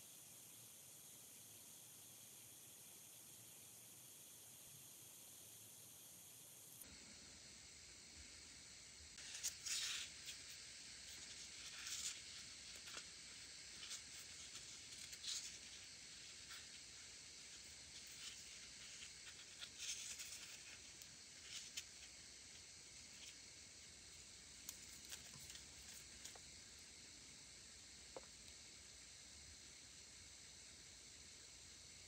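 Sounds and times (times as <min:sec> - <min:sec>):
faint steady hiss: 0:00.0 - 0:32.0.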